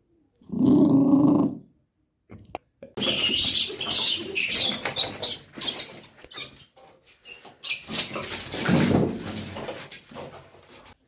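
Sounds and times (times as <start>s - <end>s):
rat squealing: 3.0s - 8.4s.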